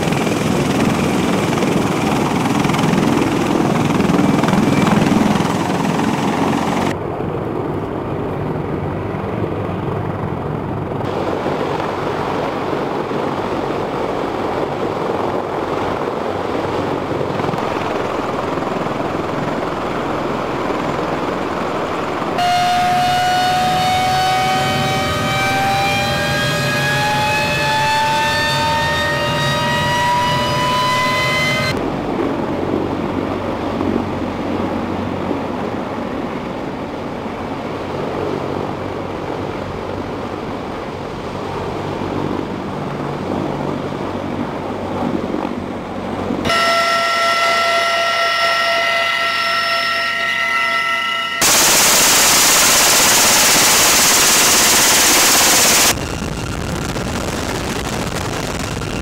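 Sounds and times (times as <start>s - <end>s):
helicopter turbine and rotor: 0.0s - 59.0s
loud rushing noise: 51.4s - 59.0s.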